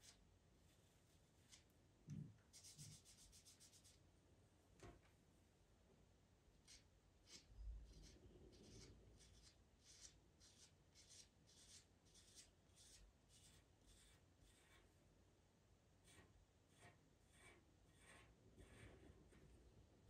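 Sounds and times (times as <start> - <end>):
pencil scratching on paper: 2.5 - 4.0, 6.6 - 14.9, 16.0 - 19.5.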